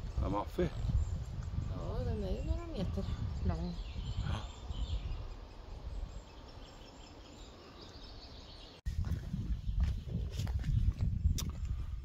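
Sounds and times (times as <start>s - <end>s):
faint bird chirps: 0.2s - 8.8s.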